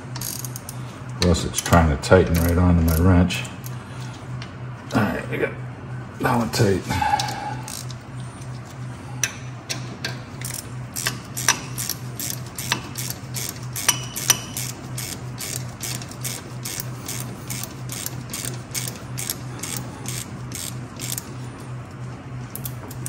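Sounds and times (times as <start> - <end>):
hand ratchet clicking: 0.2 - 0.8, 2.3 - 3.1, 10.4 - 21.3.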